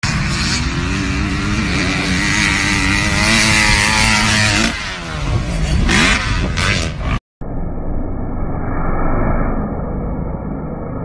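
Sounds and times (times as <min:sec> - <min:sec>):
dirt bike engine revving: 0:00.0 - 0:07.2.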